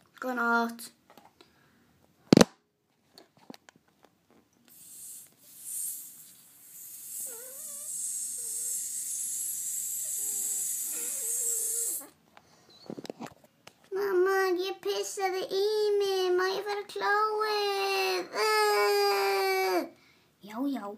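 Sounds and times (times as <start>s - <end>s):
child pretend snoring: 4.8s - 12.2s.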